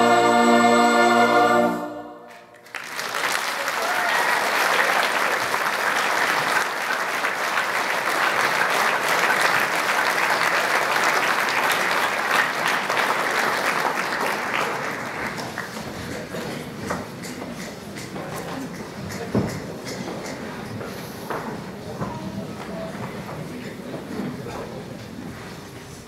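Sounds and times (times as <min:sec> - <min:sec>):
audience applauding: 0:02.3 - 0:16.7.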